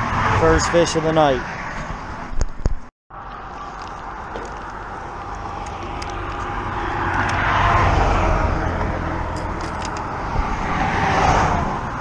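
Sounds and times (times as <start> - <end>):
car passing by: 5.4 - 12.0.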